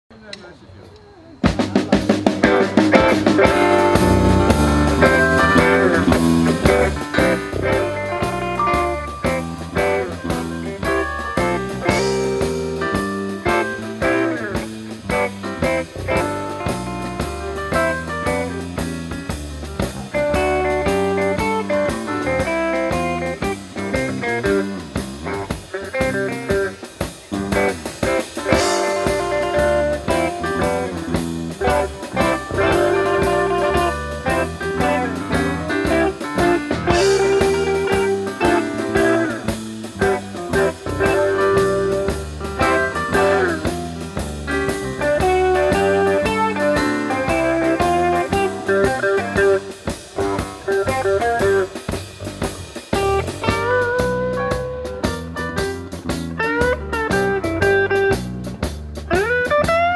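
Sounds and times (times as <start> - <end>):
keyboard: 0.1 - 58.6
electric guitar: 1.0 - 59.9
bass guitar: 1.4 - 59.9
drum kit: 1.4 - 59.9.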